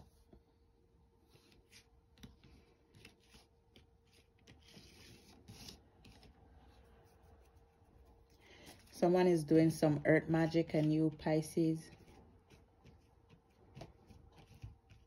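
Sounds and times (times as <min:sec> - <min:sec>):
cards shuffling: 0:01.3 - 0:06.4, 0:11.9 - 0:15.0.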